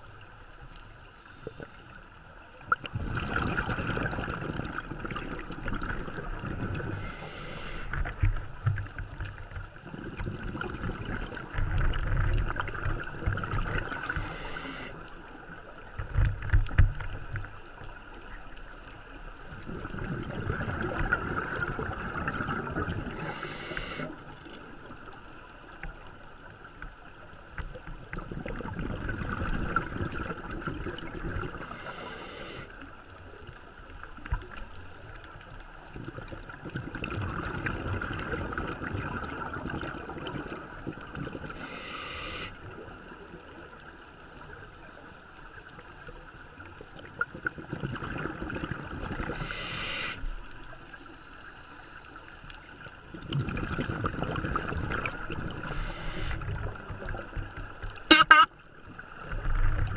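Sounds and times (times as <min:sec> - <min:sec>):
underwater bubbling rumble: 0:01.4 - 0:58.1, 0:58.8 - 0:59.9
scuba regulator breathing hisses: 0:06.9 - 0:08.0, 0:13.9 - 0:15.0, 0:23.2 - 0:24.2, 0:31.6 - 0:32.7, 0:41.6 - 0:42.6, 0:49.3 - 0:50.2, 0:55.6 - 0:56.4.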